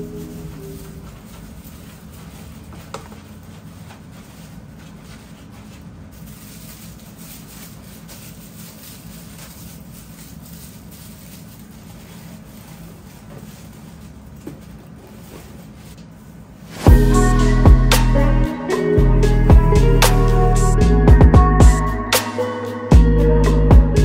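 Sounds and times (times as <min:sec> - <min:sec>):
paper wrap rustling and crinkling: 0:00.0 - 0:16.9
steady low hum: 0:00.0 - 0:22.1.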